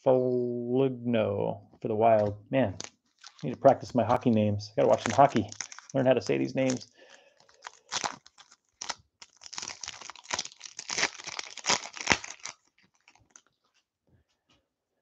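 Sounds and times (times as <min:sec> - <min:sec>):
wrapper tearing and crinkling: 0:02.8 - 0:13.5.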